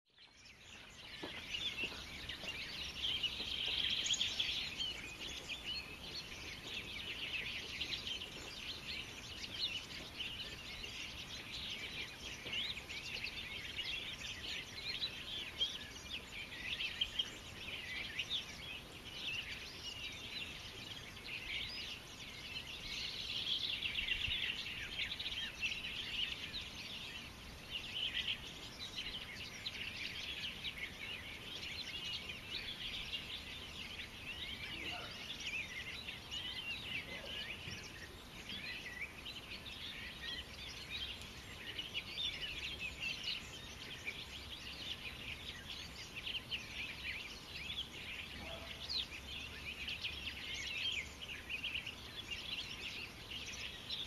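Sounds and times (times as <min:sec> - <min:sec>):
songbirds chirping and trilling: 0:00.0 - 0:54.0.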